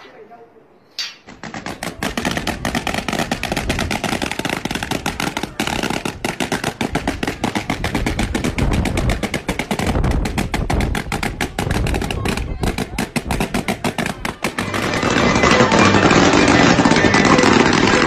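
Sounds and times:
balloons popping rapidly: 1.3s - 18.0s.

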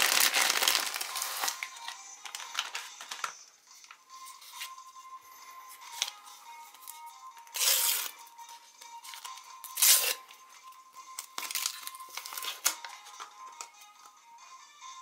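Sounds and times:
paper tearing: 0.0s - 1.6s, 7.5s - 8.2s, 9.7s - 10.2s
paper crinkling: 0.0s - 3.4s, 5.8s - 8.2s, 11.2s - 13.6s.

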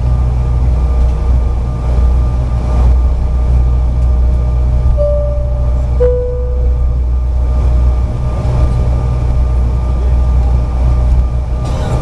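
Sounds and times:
jet engines rumbling in cabin: 0.0s - 12.0s
clear high tone: 5.0s - 7.1s.

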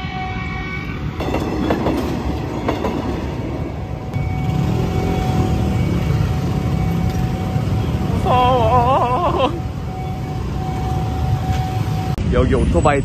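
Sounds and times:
crossing signal warning tone: 0.0s - 12.8s
motorbike engines: 1.0s - 13.0s
train wheels clacking: 1.2s - 3.8s.

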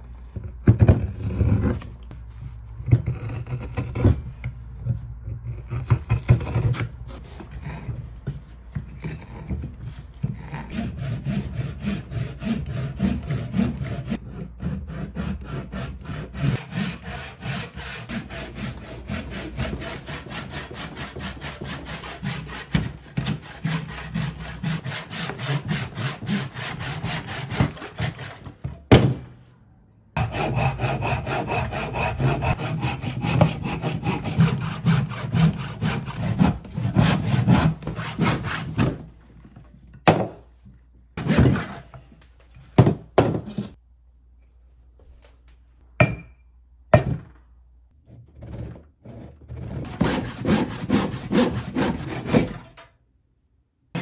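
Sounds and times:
handsaw cutting wood: 10.3s - 28.5s, 30.2s - 38.9s, 49.0s - 52.6s.

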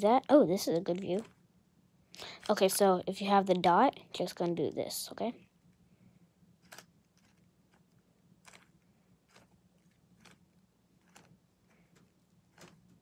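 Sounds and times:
puzzle cube plastic clicks: 6.6s - 10.4s.

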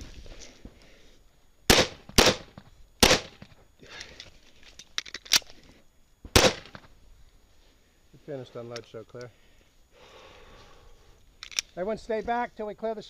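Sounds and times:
pistol shots: 1.7s - 3.4s, 6.3s - 6.8s.

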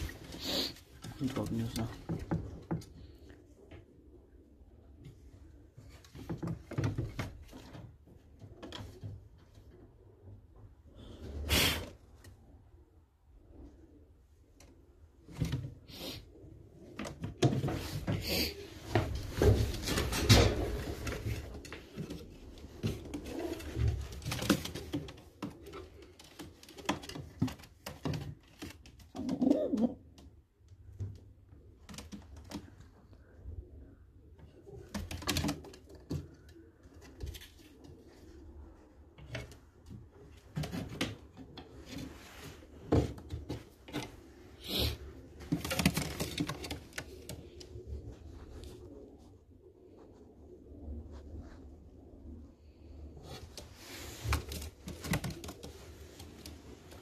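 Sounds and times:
knocks and rustles: 0.0s - 3.8s, 5.0s - 9.8s, 16.8s - 29.5s, 39.1s - 44.5s, 45.2s - 48.3s
pigeons cooing: 29.1s - 30.2s.

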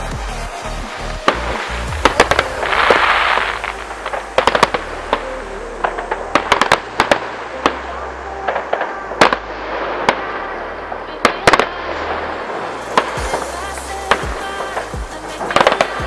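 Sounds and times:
fireworks bangs and cracks: 0.0s - 5.3s, 11.2s - 16.0s
electronic music with bass: 0.0s - 16.0s
firework hissing rush: 0.0s - 16.0s.

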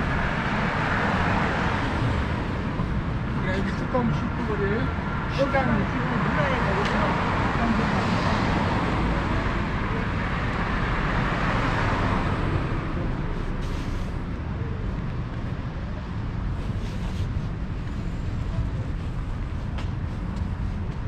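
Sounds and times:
car passing: 0.0s - 14.3s
road traffic rumble: 0.0s - 21.0s.

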